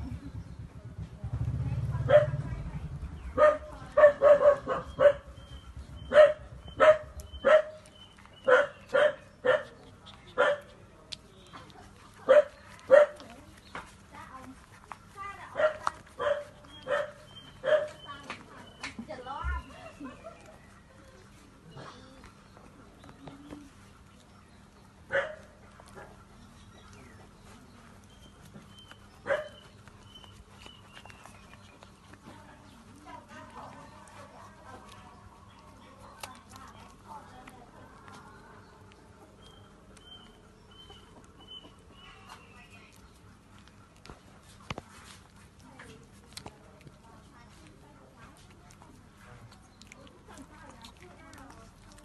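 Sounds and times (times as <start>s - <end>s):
dog barking in sharp yelps: 3.4s - 5.4s, 6.0s - 9.8s, 10.4s - 10.7s, 12.3s - 13.2s, 15.6s - 18.1s, 25.1s - 25.5s, 29.2s - 29.7s.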